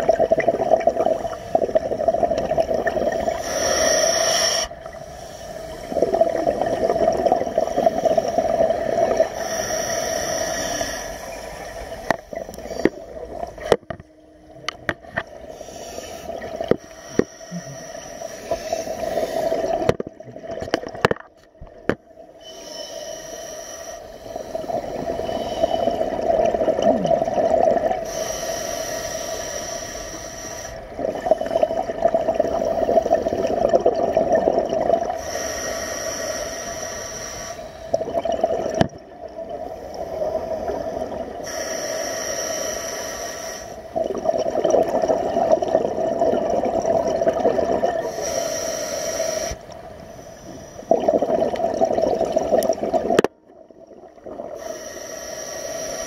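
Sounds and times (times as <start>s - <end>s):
exhaled bubbles gurgling: 0.0s - 22.6s, 24.2s - 28.5s, 30.8s - 36.6s, 37.8s - 42.0s, 43.8s - 56.0s
regulator inhalation hiss: 3.2s - 6.0s, 9.3s - 12.9s, 15.5s - 19.8s, 22.4s - 26.0s, 28.0s - 31.5s, 35.2s - 38.0s, 39.7s - 44.0s, 48.0s - 50.9s, 54.6s - 56.0s.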